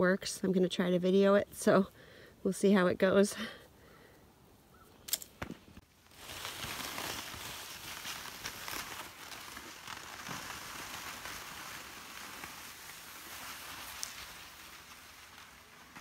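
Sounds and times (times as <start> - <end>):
footsteps crunching in snow: 5.9 - 16.0
plastic sled sliding over snow: 5.9 - 16.0.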